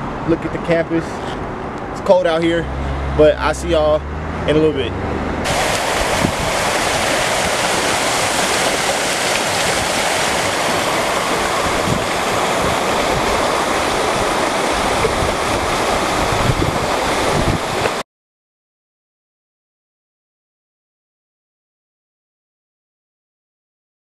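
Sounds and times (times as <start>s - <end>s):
fountain water running and splashing: 5.5s - 18.0s.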